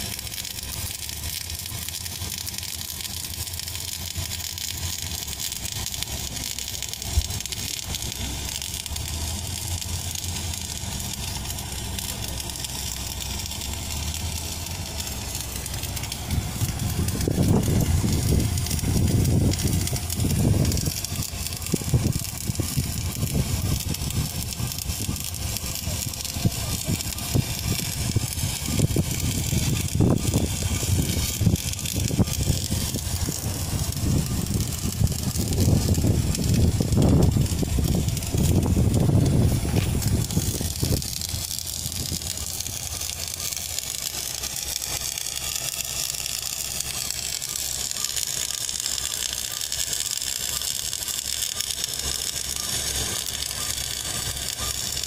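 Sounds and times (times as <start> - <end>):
welding arc crackling and sizzling: 0.0 - 55.0
low rumbling thumps: 15.5 - 24.2, 27.3 - 42.9.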